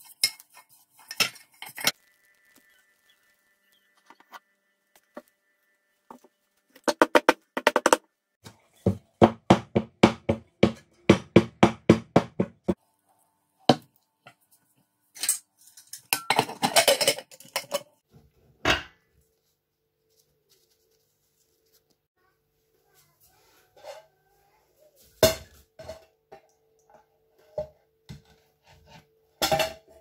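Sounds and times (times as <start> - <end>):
metal lid clattering and scraping: 0.0 - 2.0, 15.2 - 18.0, 28.7 - 30.0.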